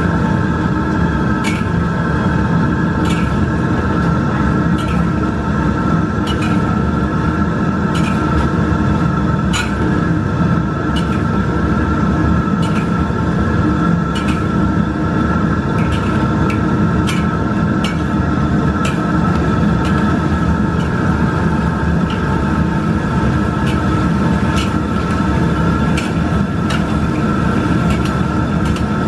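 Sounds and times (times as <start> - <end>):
food deep-frying in oil: 0.0 - 29.0.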